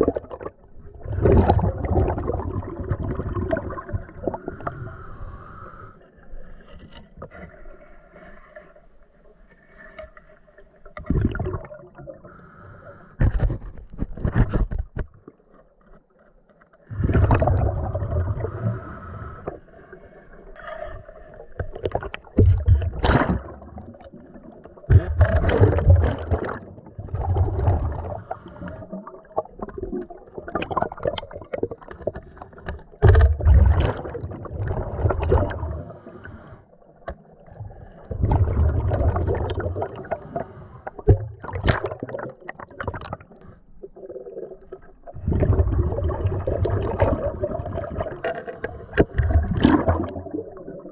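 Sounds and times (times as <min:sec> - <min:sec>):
air bubbling underwater: 0:00.0 - 0:04.4, 0:11.0 - 0:12.1, 0:17.0 - 0:18.6, 0:24.9 - 0:28.2, 0:38.1 - 0:40.1, 0:44.0 - 0:48.2, 0:49.2 - 0:50.9.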